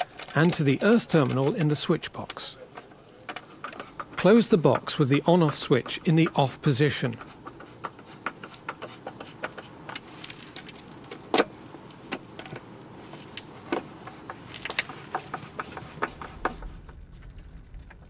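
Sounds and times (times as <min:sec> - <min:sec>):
low steady rumble: 0:16.0 - 0:18.0.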